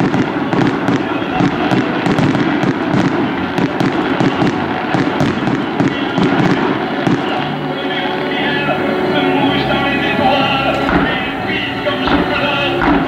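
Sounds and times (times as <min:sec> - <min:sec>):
fireworks bangs and crackles: 0:00.0 - 0:13.0
music with held notes: 0:00.1 - 0:13.0.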